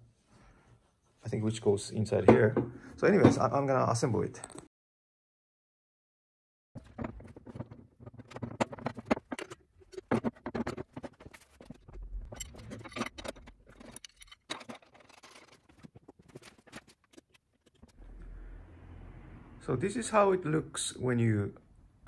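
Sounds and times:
metal fittings clinking and knocking: 0:06.8 - 0:17.9.

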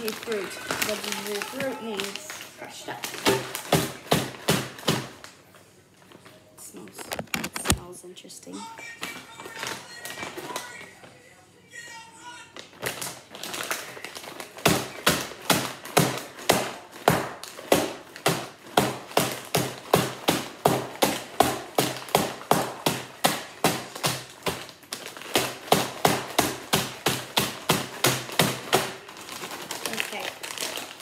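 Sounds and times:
bag pounded on hard counter: 0:14.6 - 0:29.0.

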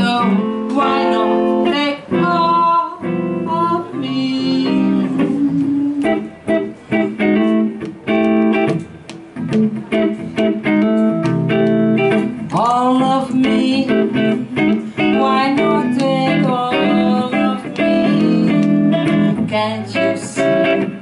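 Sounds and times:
woman singing: 0:00.0 - 0:06.4, 0:12.5 - 0:21.0
electric guitar jazz chords: 0:00.0 - 0:21.0.

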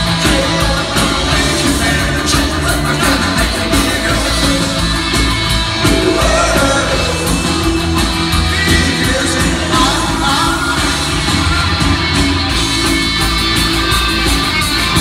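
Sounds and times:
person singing: 0:00.0 - 0:12.0
live punk rock band: 0:00.0 - 0:15.0.

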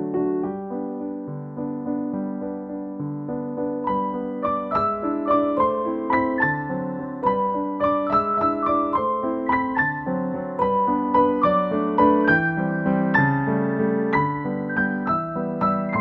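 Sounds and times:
piano melody over chords: 0:00.0 - 0:16.0.

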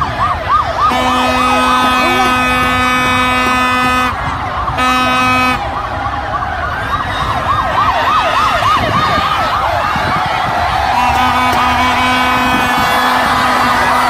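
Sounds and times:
sirens warbling: 0:00.0 - 0:14.0
horn note: 0:00.9 - 0:05.7, 0:11.0 - 0:14.0.

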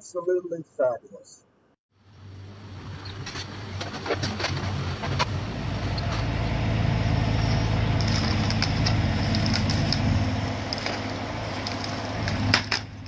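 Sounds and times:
excavator engine running: 0:02.0 - 0:13.0
branches clicking and snapping: 0:07.6 - 0:13.0.

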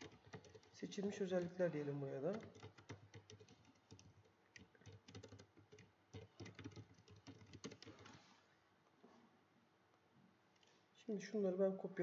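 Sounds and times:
keyboard typing clicks: 0:00.0 - 0:01.6, 0:02.2 - 0:08.2.

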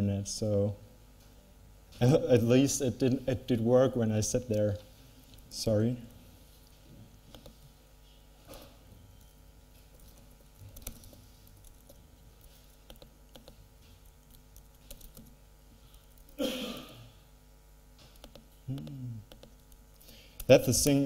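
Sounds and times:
typing on laptop keyboard: 0:07.3 - 0:07.6, 0:09.2 - 0:16.4, 0:18.0 - 0:19.8
low vocal hum: 0:18.6 - 0:19.4.

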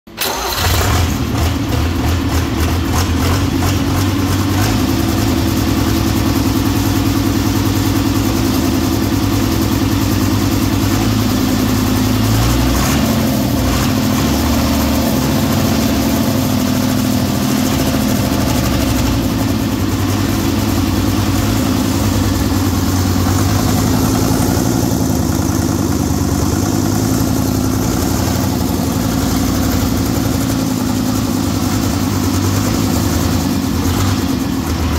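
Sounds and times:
diesel engine starting and idling: 0:00.1 - 0:34.9.

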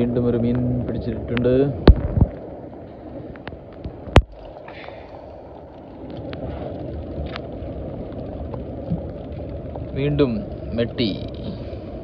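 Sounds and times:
light rain ticking: 0:00.0 - 0:12.0
wind rumble on microphone: 0:00.0 - 0:12.0.

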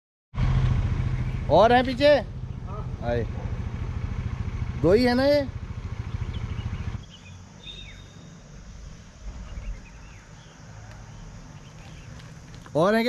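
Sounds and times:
engine idling: 0:00.4 - 0:13.0
faint bird chirps: 0:05.8 - 0:12.6.

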